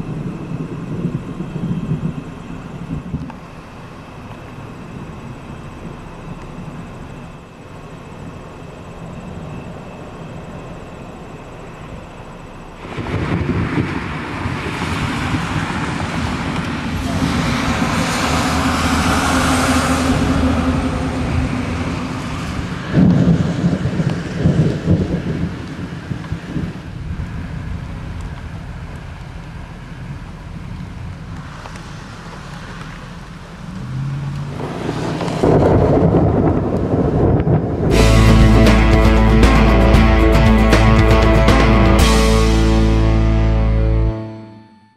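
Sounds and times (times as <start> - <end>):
thunder rumbling: 0.0 - 44.0
sharp thunder claps: 12.8 - 26.9, 34.5 - 39.8.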